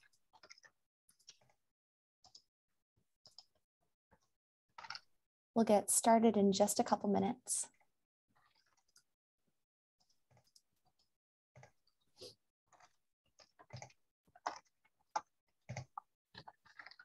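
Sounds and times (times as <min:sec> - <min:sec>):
keyboard and mouse clicks: 0:04.8 - 0:05.1, 0:12.8 - 0:17.0.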